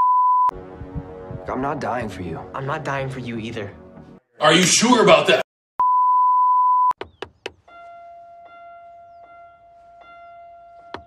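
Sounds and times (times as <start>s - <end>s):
steady test tone beep: 0.0s - 0.5s, 5.8s - 7.0s.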